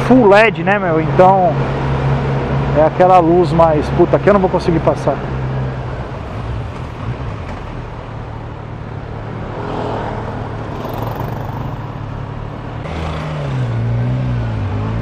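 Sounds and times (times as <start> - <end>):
car traffic: 0.0 - 15.0
motorcycle engine running: 10.7 - 12.0.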